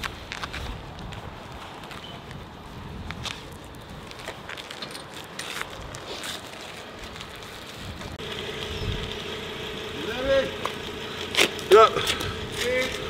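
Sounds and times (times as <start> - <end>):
wind on microphone: 0.0 - 4.5, 7.7 - 9.2
short clicks and scuffs: 10.5 - 13.0.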